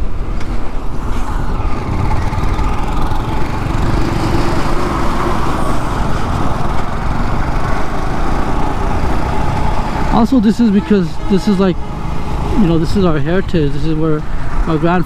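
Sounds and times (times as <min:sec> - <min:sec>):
wind and road noise: 0:00.0 - 0:15.0
motorcycle engine running: 0:01.6 - 0:13.3.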